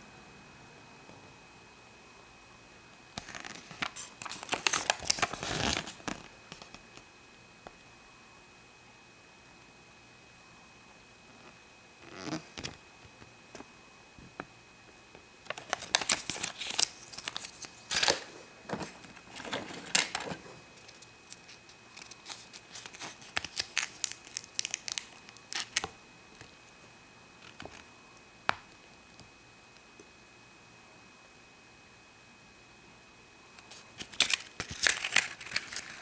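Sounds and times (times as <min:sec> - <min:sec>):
paper crinkling and crackling: 0:03.2 - 0:07.0, 0:15.4 - 0:26.6, 0:27.4 - 0:27.9, 0:33.6 - 0:36.0.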